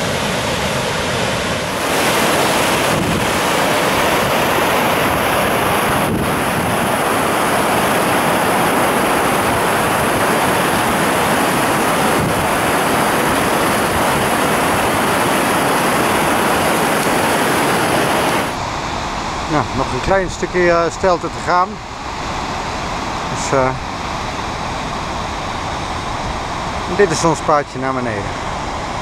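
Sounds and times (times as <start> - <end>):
water rushing over rocks: 0.0 - 19.0.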